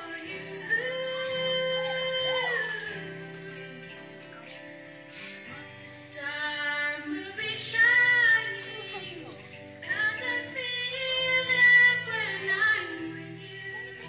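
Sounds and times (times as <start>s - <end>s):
high voice singing: 0.0s - 4.6s
soft accompaniment: 0.0s - 14.0s.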